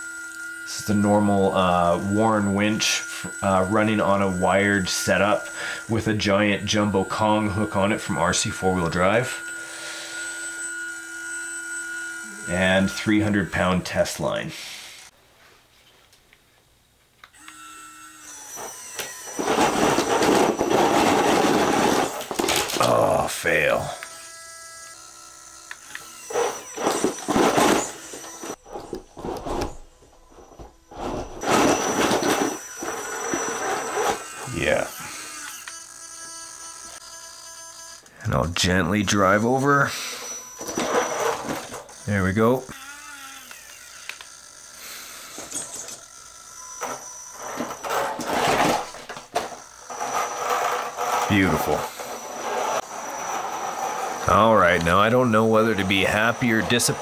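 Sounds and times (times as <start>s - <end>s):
high electric motor whine: 0.0s - 15.2s, 17.2s - 57.0s
tyres scraping on logs: 46.9s - 57.0s.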